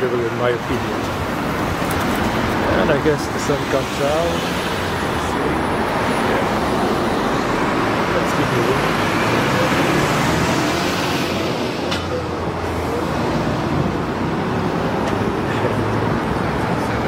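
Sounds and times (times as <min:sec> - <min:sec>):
passing cars and buses: 0:00.0 - 0:17.0.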